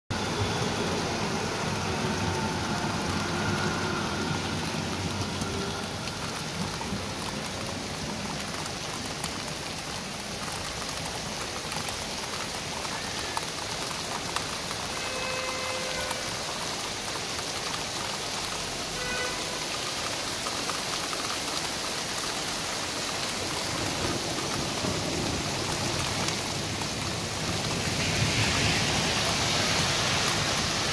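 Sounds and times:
tram rumbling past: 0.1 - 8.4
rain pattering on wet street: 0.1 - 30.9.

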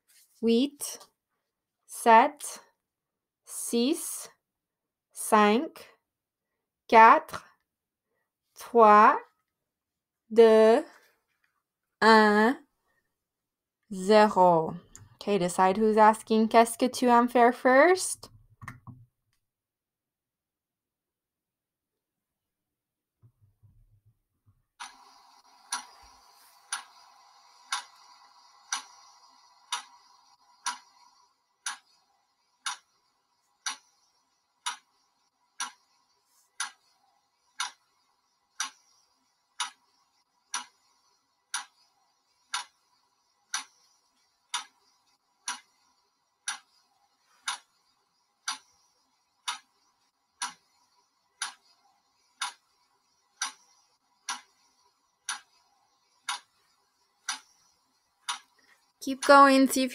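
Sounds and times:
faint steady sound: 23.6 - 59.9
clock ticking: 24.8 - 59.9.

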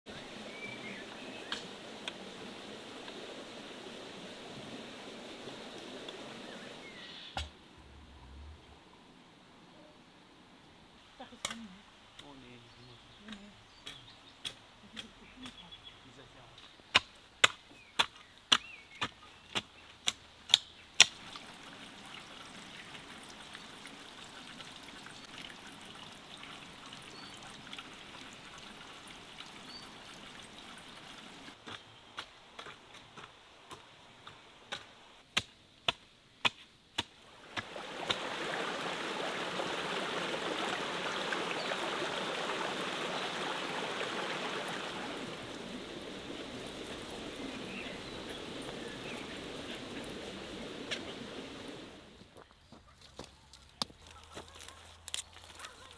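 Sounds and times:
garden hoe chopping soil: 16.9 - 21.4, 31.6 - 38.3
trickle of running water: 21.1 - 31.6, 37.3 - 52.0.

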